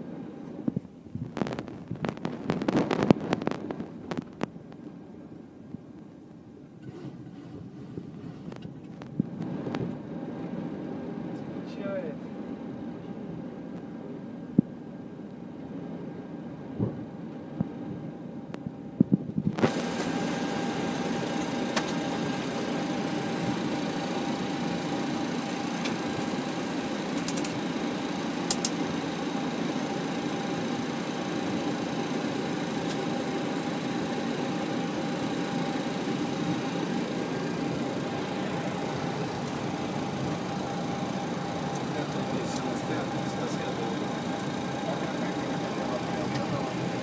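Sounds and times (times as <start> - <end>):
aircraft cockpit engine hum: 0.0 - 47.0
sharp clicks: 28.4 - 28.8.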